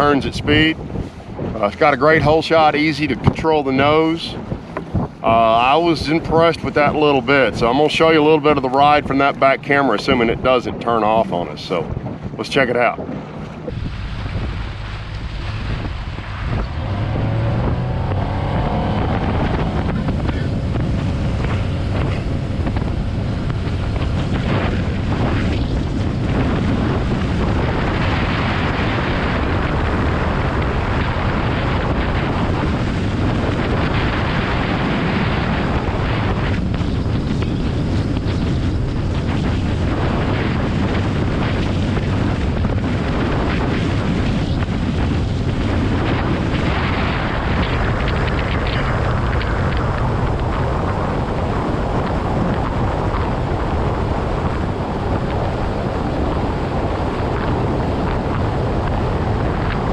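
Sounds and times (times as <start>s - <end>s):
water rushing along hull: 0.0s - 59.9s
wind buffeting microphone: 0.0s - 59.9s
outboard motor running: 4.4s - 59.9s.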